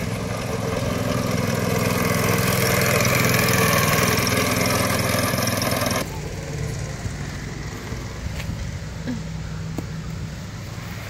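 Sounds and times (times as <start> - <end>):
go-kart engine driving past: 0.0 - 8.8.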